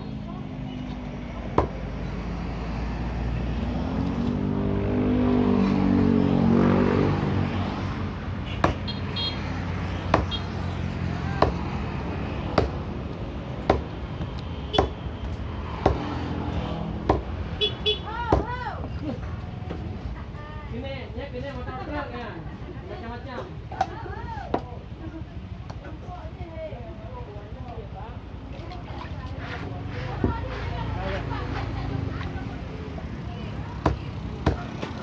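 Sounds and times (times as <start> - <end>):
motor vehicle passing: 0.2 - 20.6, 28.4 - 35.0
cleaver chopping fish on wood: 1.5 - 1.9, 8.6 - 8.9, 10.0 - 10.5, 11.4 - 11.8, 12.4 - 12.9, 13.6 - 14.0, 14.7 - 15.1, 15.7 - 16.2, 17.0 - 17.4, 18.2 - 18.6, 33.8 - 35.0.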